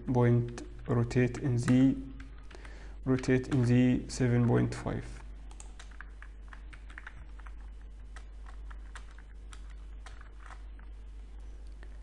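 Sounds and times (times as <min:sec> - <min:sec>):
low steady hum: 0:00.0 - 0:12.0
computer keyboard typing: 0:00.4 - 0:04.6, 0:05.5 - 0:10.9
computer mouse clicking: 0:05.5 - 0:10.9.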